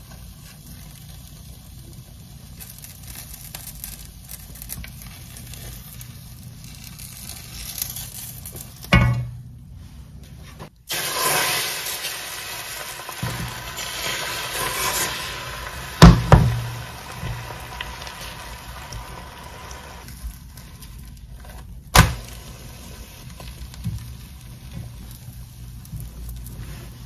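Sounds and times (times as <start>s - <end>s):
egg sizzling in a frying pan: 0.0s - 9.4s, 10.7s - 27.0s.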